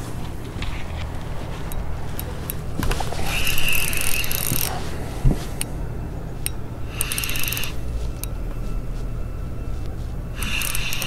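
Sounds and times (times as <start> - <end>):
fishing reel gears whirring: 1.7 - 4.8, 6.4 - 8.5, 10.2 - 11.0.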